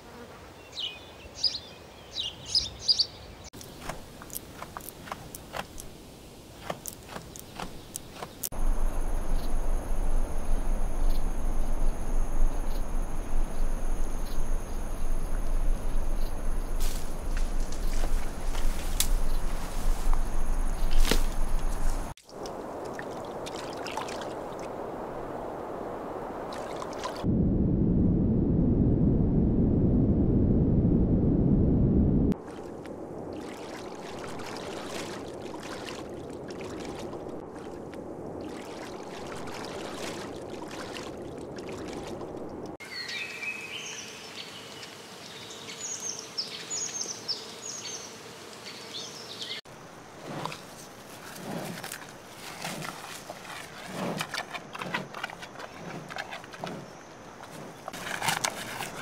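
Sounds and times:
birds chirping: 0:00.6 - 0:05.9, 0:06.6 - 0:22.1
low rushing noise: 0:08.6 - 0:23.5, 0:24.4 - 0:32.4
gorilla munching leaves: 0:50.2 - 0:59.0.

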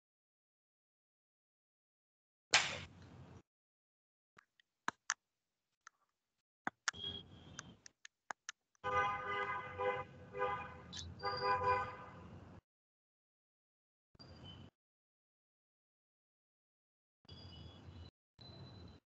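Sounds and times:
sharp clicks: 0:06.7 - 0:08.6
two-tone vehicle horn honking: 0:08.8 - 0:12.2.

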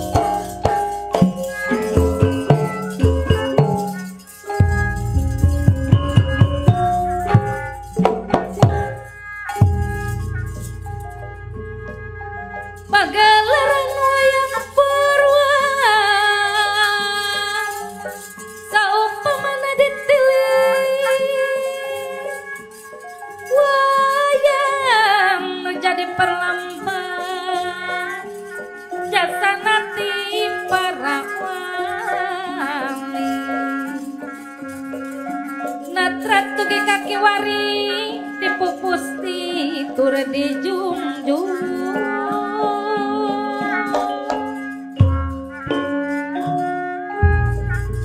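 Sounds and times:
gamelan ensemble: 0:00.0 - 0:48.0
woman singing with vibrato: 0:12.9 - 0:22.5, 0:23.5 - 0:34.8, 0:35.8 - 0:44.6.

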